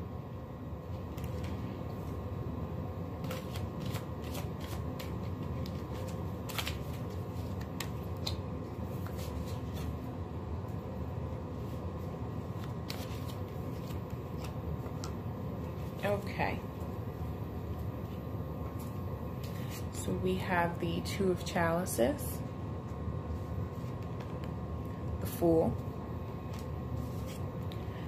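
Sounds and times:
low background hum: 0.0s - 28.0s
cards snapping and tapping: 3.2s - 8.4s.

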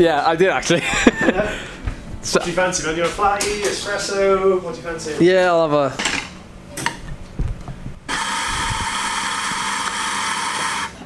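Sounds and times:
coffee grinder grinding: 8.1s - 11.0s.

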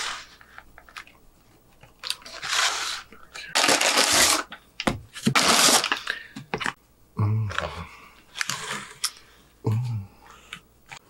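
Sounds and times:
food packaging crinkling: 3.6s - 4.5s.

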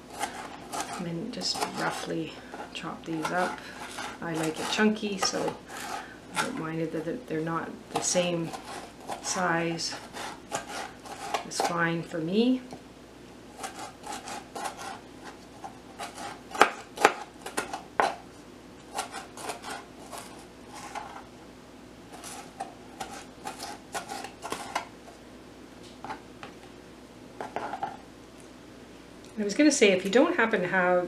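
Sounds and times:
knife chopping on plastic board: 0.1s - 2.1s, 7.9s - 11.8s, 13.6s - 15.4s, 16.0s - 18.2s.

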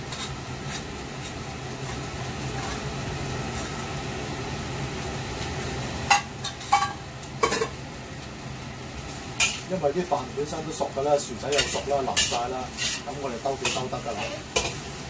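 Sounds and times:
rice scraped from a pot: 0.0s - 3.8s, 11.5s - 14.9s
gas burner hum and hiss: 0.0s - 15.0s
metal utensils clinking: 11.5s - 13.0s.

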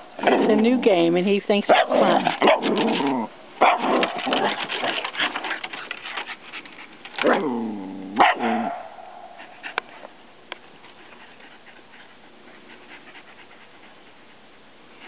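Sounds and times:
dog barking: 1.7s - 2.7s, 3.6s - 4.6s, 8.2s - 9.4s.

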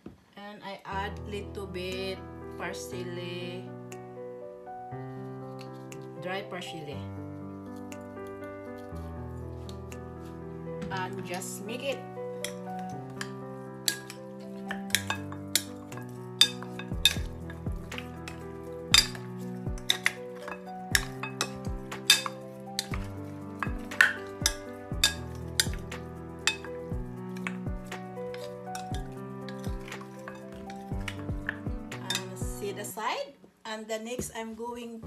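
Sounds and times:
soft background music: 0.6s - 35.0s
spatula scraping glass bowl: 26.5s - 27.6s.

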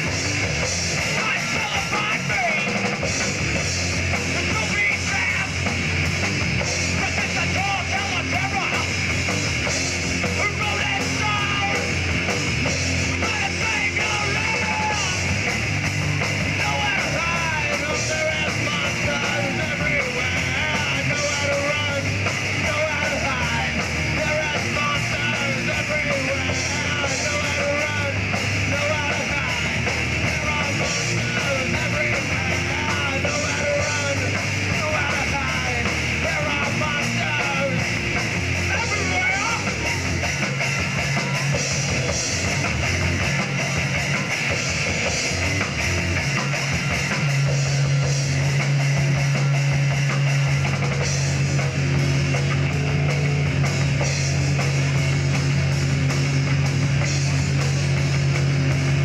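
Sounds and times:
drum kit: 0.0s - 59.0s
electric guitars: 0.0s - 59.0s
shouted vocals: 10.4s - 12.0s, 13.1s - 15.3s, 16.5s - 42.2s.

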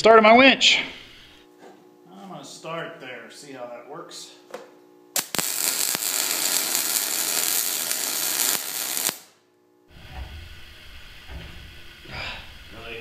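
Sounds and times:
welding arc crackling and hissing: 5.1s - 13.0s
low rumble: 9.9s - 13.0s.

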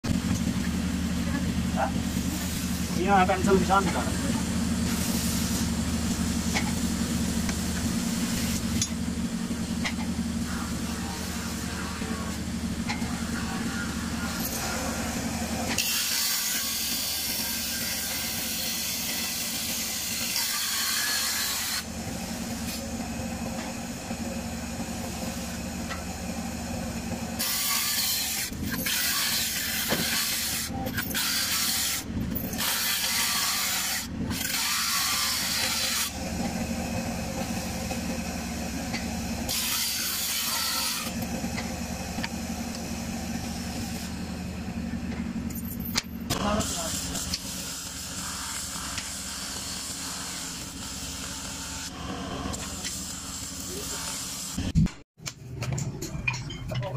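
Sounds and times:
circular saw motor hum: 0.0s - 54.8s
saw cutting wood hiss: 14.4s - 23.0s, 27.3s - 44.2s, 46.4s - 54.8s.

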